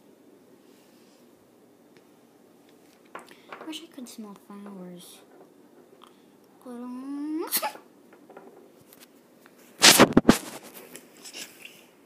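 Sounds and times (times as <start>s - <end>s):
girl's wordless voice: 3.6s - 5.3s, 6.6s - 7.9s.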